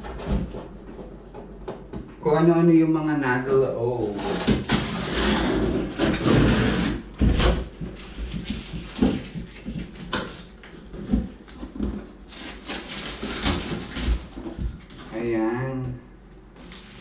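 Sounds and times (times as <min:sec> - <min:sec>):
cardboard and tape rustling: 0:04.0 - 0:15.9.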